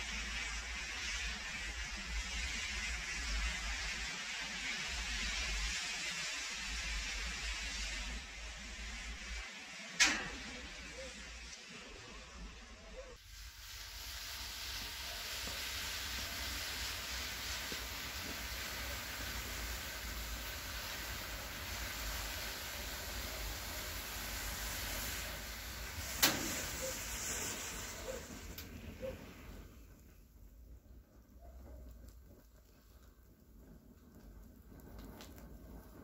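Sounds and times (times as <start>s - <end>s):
fiery hiss of burning sparklers: 0.0s - 36.0s
sharp crack: 9.9s - 11.8s, 25.0s - 29.2s.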